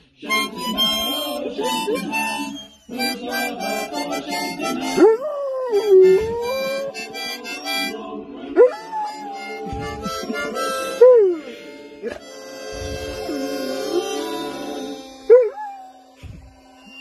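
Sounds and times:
harmonica playing chords: 0:00.0 - 0:05.1, 0:05.8 - 0:08.1, 0:08.8 - 0:17.0
dog howling: 0:04.6 - 0:17.0.

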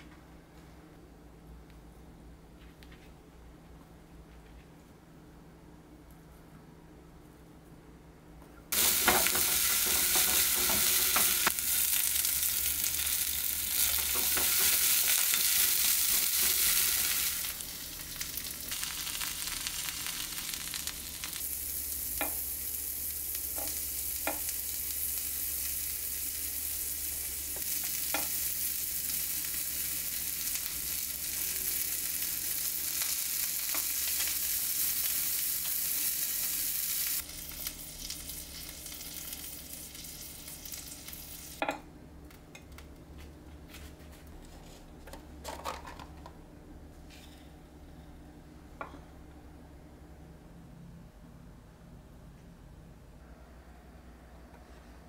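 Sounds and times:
food sizzling in frying pan: 0:08.7 - 0:41.6.

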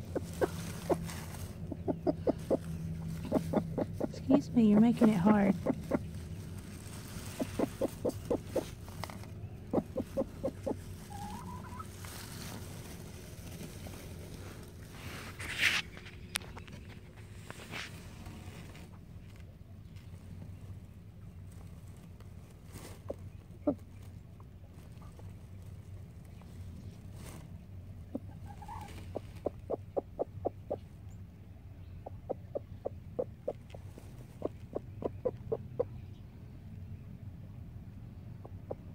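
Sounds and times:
hen clucking: 0:00.0 - 0:12.1, 0:28.0 - 0:31.0, 0:31.8 - 0:36.2, 0:38.4 - 0:38.9.

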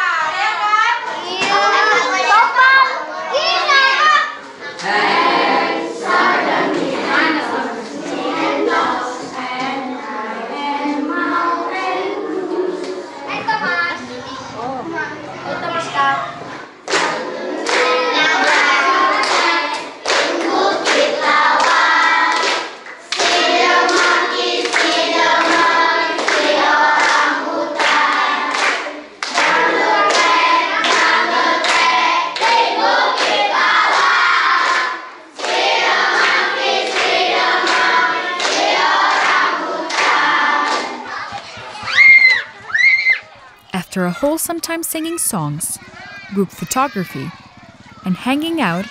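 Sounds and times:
children singing in unison: 0:04.6 - 0:13.4, 0:17.2 - 0:22.6, 0:23.2 - 0:41.2.

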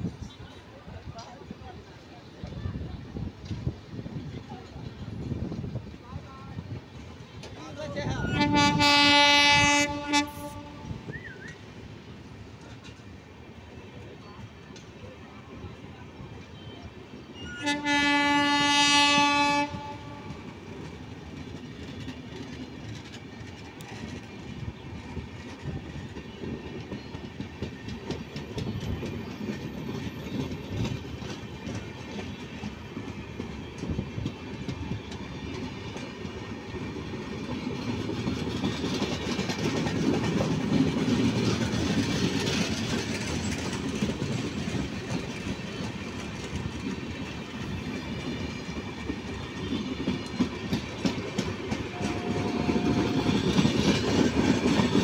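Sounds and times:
train coaches rumbling past: 0:00.0 - 0:55.0
wheels clicking over rail joints: 0:20.3 - 0:55.0.

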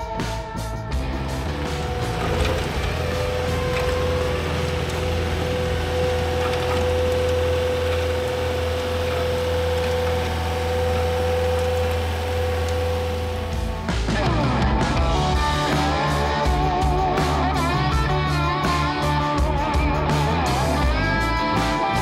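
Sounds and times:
steady engine whine: 0:00.9 - 0:19.3
excavator diesel engine running: 0:01.0 - 0:16.5.

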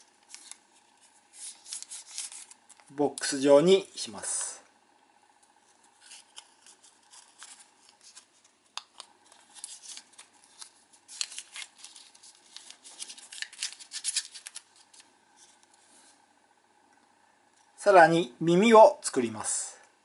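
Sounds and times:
paper folding crinkles: 0:00.0 - 0:03.2, 0:05.5 - 0:16.2.

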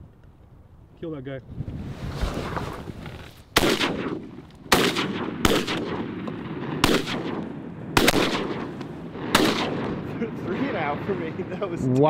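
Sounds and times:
shotgun shots echoing: 0:03.6 - 0:11.2.

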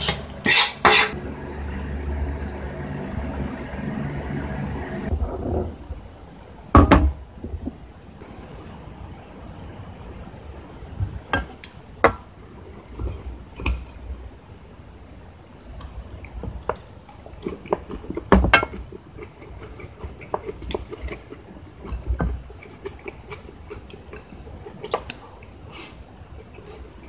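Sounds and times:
utensils scraping ceramic bowls: 0:00.0 - 0:01.2, 0:17.2 - 0:25.0.

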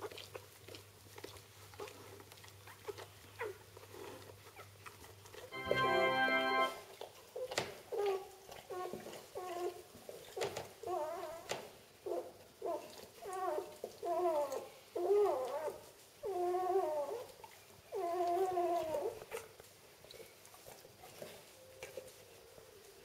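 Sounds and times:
puppy crying: 0:12.1 - 0:17.3, 0:17.9 - 0:19.2.

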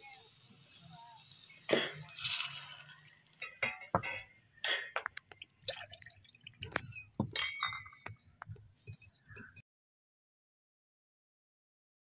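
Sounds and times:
liquid splashing: 0:05.4 - 0:06.8.

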